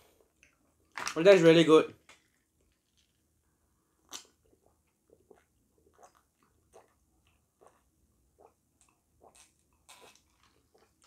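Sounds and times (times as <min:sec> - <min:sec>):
gulping and swallowing: 0:04.1 - 0:10.9.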